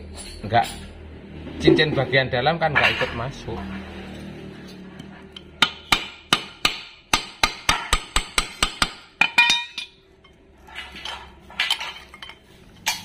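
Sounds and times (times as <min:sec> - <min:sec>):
metal parts clinking: 0:09.2 - 0:13.0.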